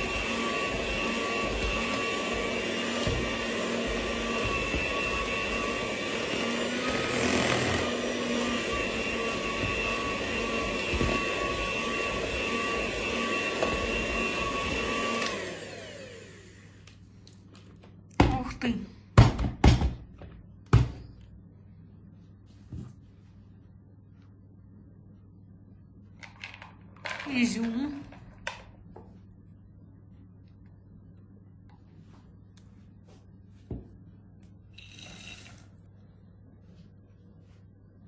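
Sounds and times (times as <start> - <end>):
electric hand mixer whine: 0.0 - 16.8, 34.8 - 35.8.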